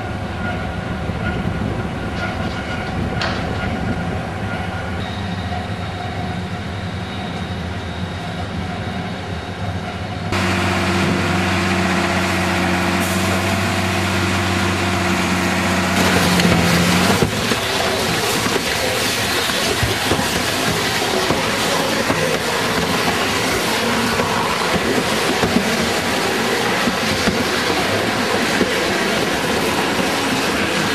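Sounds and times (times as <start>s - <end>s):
tyre shredder machinery humming: 10.4s - 24.4s.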